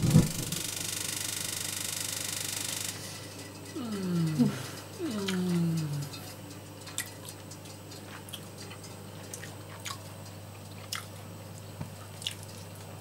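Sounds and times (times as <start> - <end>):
chewing and lip-smacking: 3.7 - 11.3, 11.9 - 13.0
man saying mmm: 3.8 - 6.3.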